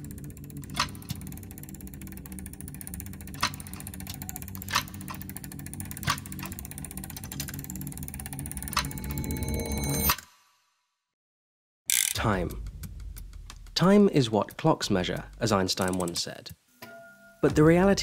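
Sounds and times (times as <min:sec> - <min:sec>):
clockwork ticking: 0:00.0 - 0:10.1, 0:11.9 - 0:16.4
steady low drone: 0:00.0 - 0:10.1.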